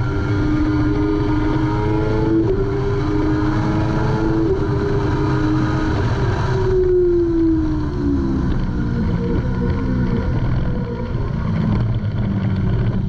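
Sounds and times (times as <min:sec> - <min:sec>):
motorcycle engine at high revs: 0:00.0 - 0:13.0.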